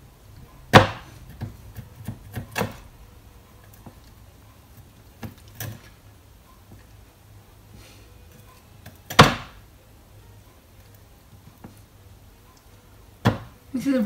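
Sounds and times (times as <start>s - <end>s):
knife knocking on chopping board: 13.2s - 13.5s.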